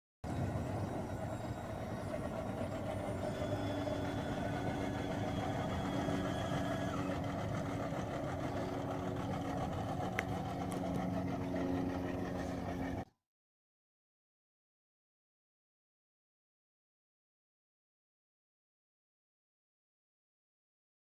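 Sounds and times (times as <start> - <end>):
engine idling: 0.2 - 13.1.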